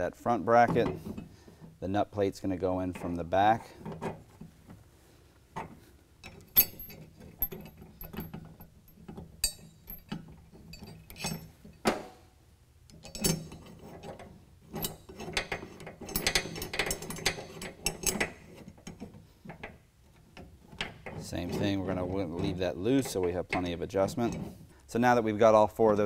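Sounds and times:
metal bracket and bolt clicking: 5.6s - 12.1s, 12.9s - 24.5s.

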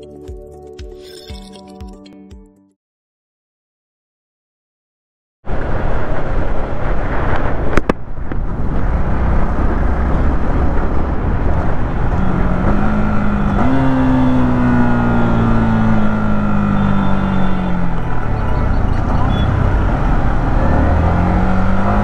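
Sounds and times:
wind and road noise: 5.4s - 22.0s.

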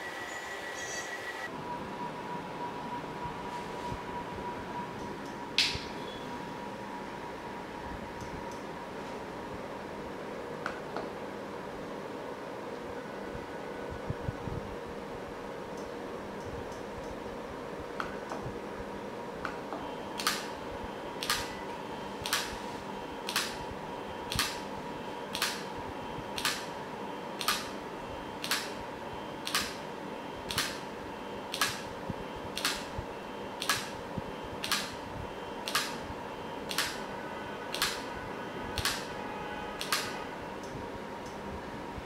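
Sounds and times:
microswitch clicking: 22.2s - 22.6s, 23.3s - 23.6s, 24.3s - 24.6s, 25.3s - 25.7s, 26.4s - 26.7s, 27.4s - 27.7s, 29.4s - 29.8s, 30.5s - 30.8s, 31.5s - 31.9s, 32.6s - 33.0s, 33.6s - 34.0s, 34.6s - 35.0s, 35.6s - 36.0s, 36.7s - 37.0s, 37.7s - 38.1s, 38.8s - 39.1s, 39.8s - 41.4s.

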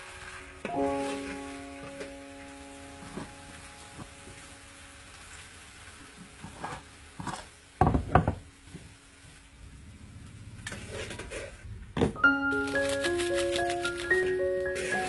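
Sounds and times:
food sizzling in a wok: 0.0s - 9.9s, 13.9s - 15.0s.

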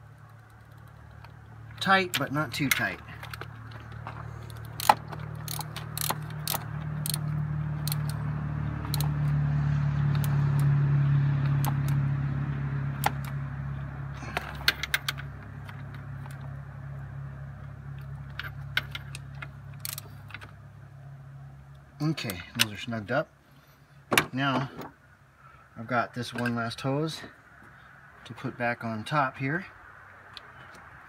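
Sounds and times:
low hum: 0.0s - 22.0s
ratchet wrench clicking: 4.4s - 8.2s, 8.9s - 9.2s, 10.1s - 10.7s, 11.5s - 12.0s, 19.8s - 20.1s.

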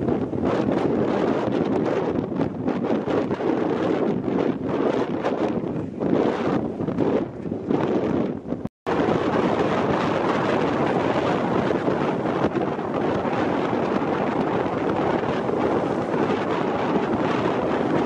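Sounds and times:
wind on microphone: 0.0s - 18.0s.

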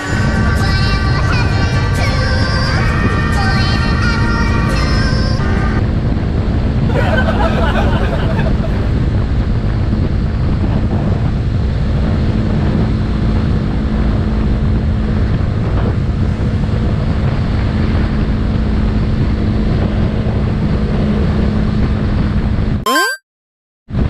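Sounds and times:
wind rush over microphone: 0.0s - 22.8s.

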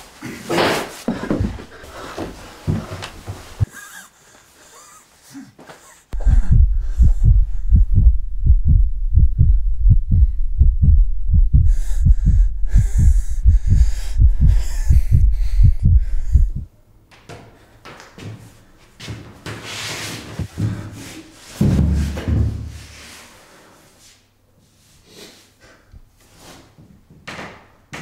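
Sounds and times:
fast heartbeat thumps: 1.1s - 1.8s, 6.2s - 16.7s.

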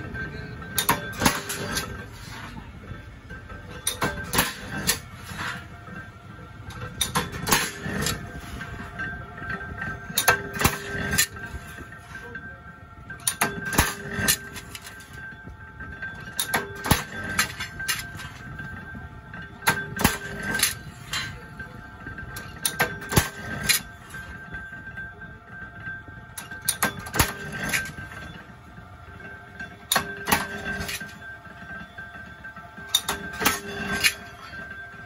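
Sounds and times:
cut steel ringing: 0.0s - 28.5s, 29.1s - 35.0s
punch press metallic clangs: 0.6s - 2.7s, 3.3s - 6.0s, 6.7s - 12.0s, 13.1s - 15.2s, 16.0s - 18.8s, 19.4s - 21.6s, 22.2s - 24.6s, 26.4s - 28.5s, 29.2s - 31.8s, 32.8s - 35.0s.

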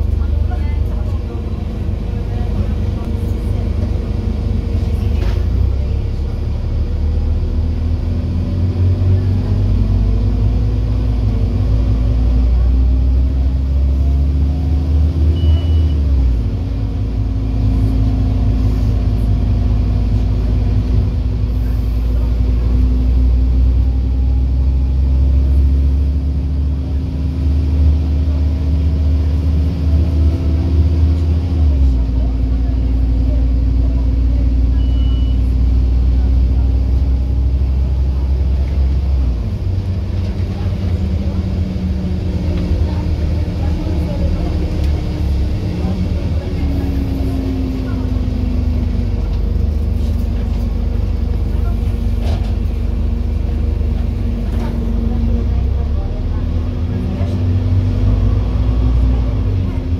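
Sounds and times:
bus diesel engine drone: 0.0s - 59.9s
short high beep: 15.4s - 16.0s, 34.8s - 35.5s.

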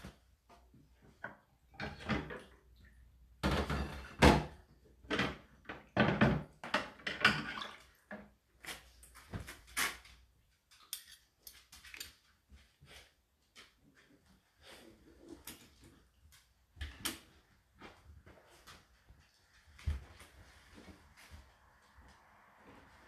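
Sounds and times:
dishwasher racks clattering: 3.4s - 7.6s.

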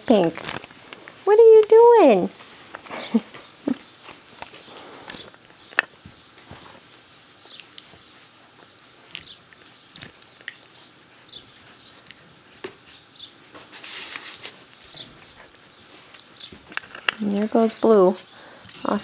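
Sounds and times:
clicks and rustles of mouthing: 0.0s - 19.0s.

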